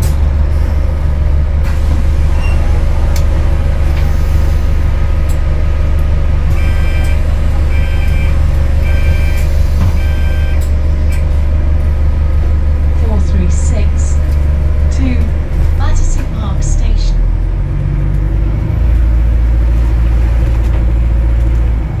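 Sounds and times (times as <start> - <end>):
bus interior rumble: 0.0 - 22.0
short electronic beeps: 6.6 - 10.6.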